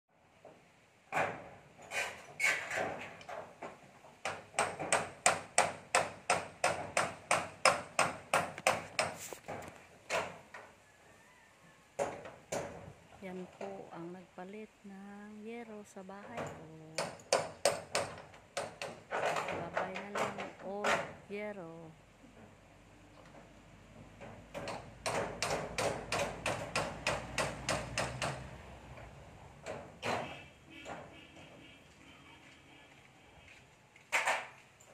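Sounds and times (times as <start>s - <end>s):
hammer on metal roof: 4.2s - 10.4s, 12.0s - 12.9s, 16.3s - 21.2s, 24.0s - 28.6s, 29.6s - 31.6s.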